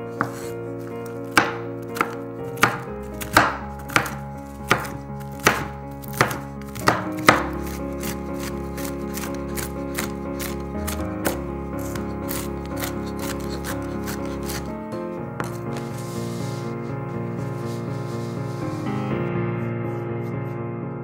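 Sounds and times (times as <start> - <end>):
background music with held chords: 0.0 - 21.0
knife chopping on cutting board: 0.1 - 14.7.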